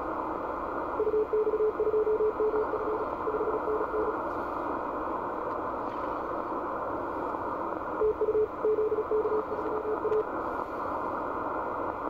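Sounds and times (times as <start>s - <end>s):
shortwave receiver hiss: 0.0s - 12.0s
morse code tones: 1.0s - 4.2s, 8.0s - 10.3s.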